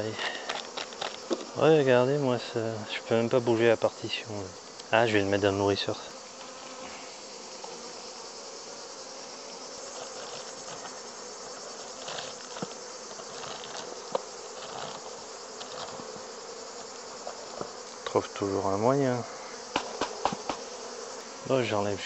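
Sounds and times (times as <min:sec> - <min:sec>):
bees buzzing: 0:00.0 - 0:22.0
hive tool clicks: 0:00.2 - 0:01.6, 0:19.7 - 0:20.7.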